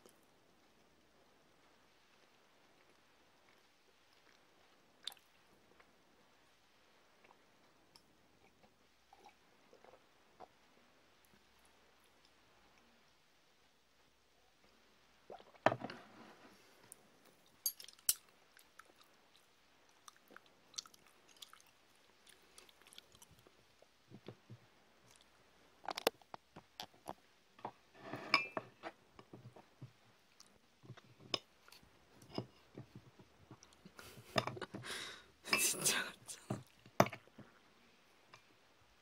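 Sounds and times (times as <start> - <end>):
chewing and biting: 20.0 - 23.6.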